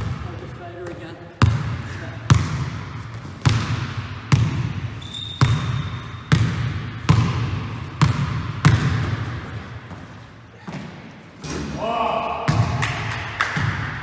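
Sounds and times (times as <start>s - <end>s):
basketball bouncing on wooden floor: 1.4s - 10.1s
high squeak: 5.0s - 6.1s.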